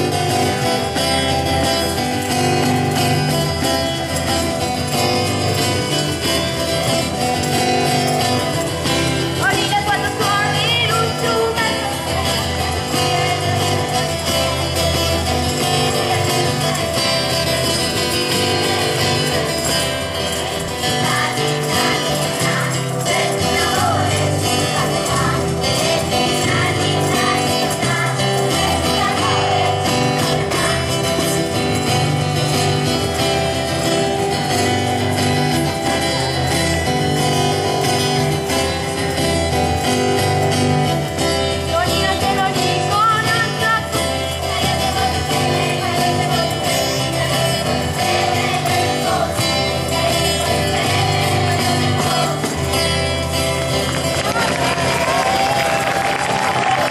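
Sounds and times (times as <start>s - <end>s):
acoustic guitar: 0.0s - 56.9s
group of people singing: 9.4s - 33.5s, 41.6s - 56.9s.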